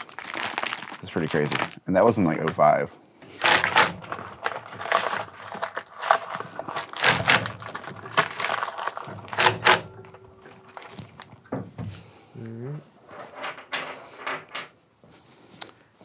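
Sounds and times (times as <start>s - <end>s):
wrapping material crinkling: 0.0s - 11.5s.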